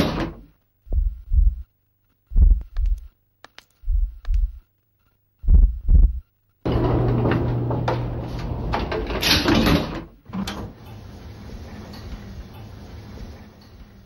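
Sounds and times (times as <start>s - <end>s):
faint low hum: 0.4s - 6.7s
heartbeat thumps: 0.8s - 1.7s, 2.3s - 3.1s, 3.8s - 4.6s, 5.4s - 6.3s.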